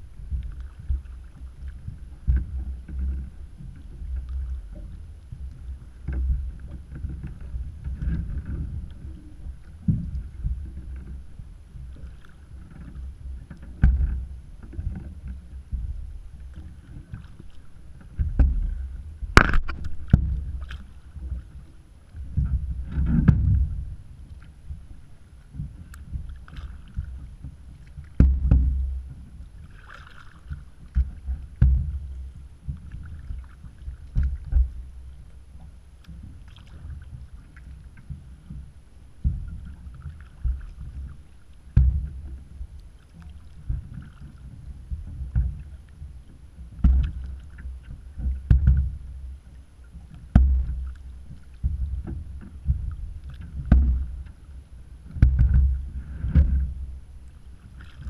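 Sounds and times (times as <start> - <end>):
low bumps against boat: 0.0 - 24.9, 25.5 - 58.0
paddle dipping into water: 0.0 - 58.0
water splashing: 16.0 - 24.9, 25.6 - 35.2, 36.0 - 38.2, 39.3 - 44.6, 46.8 - 58.0.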